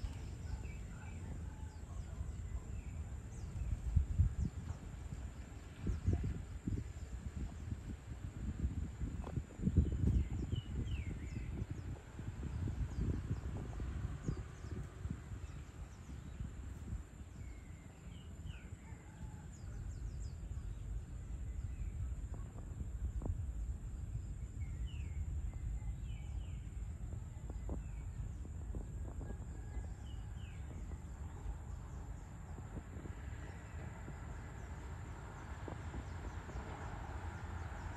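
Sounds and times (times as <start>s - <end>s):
low background rumble: 0.0s - 37.9s
small birds chirping: 0.0s - 37.9s.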